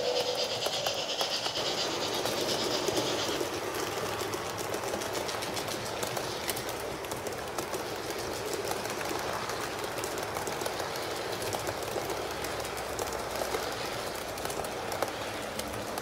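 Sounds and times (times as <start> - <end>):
model train whirring on track: 0.0 - 16.0.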